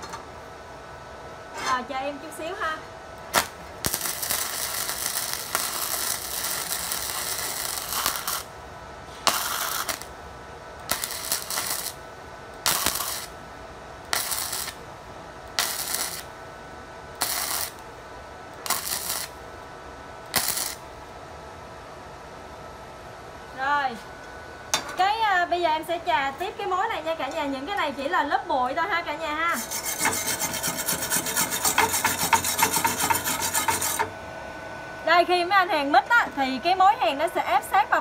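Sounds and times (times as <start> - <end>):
welding arc crackling: 3.2 - 8.6, 9.2 - 10.2, 10.8 - 13.4, 14.0 - 16.4, 17.1 - 17.9, 18.5 - 19.5, 20.3 - 21.0, 28.7 - 34.2.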